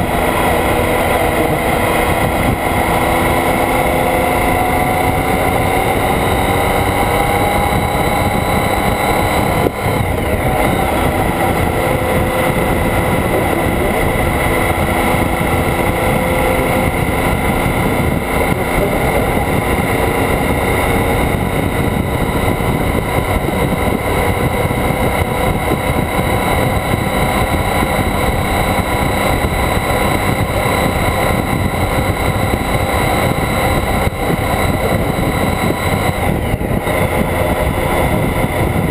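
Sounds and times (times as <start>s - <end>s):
motorcycle engine: 0.0s - 38.9s
road noise: 0.0s - 38.9s
wind rush: 0.0s - 38.9s.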